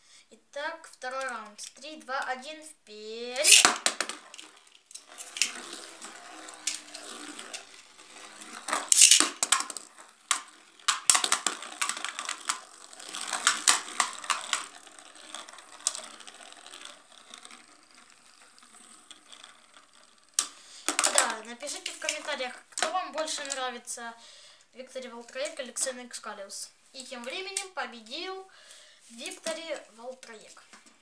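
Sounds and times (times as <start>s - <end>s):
spinning tops whirring and scraping: 3.2s - 24.0s, 27.0s - 31.0s
spinning tops clattering: 3.4s - 23.7s.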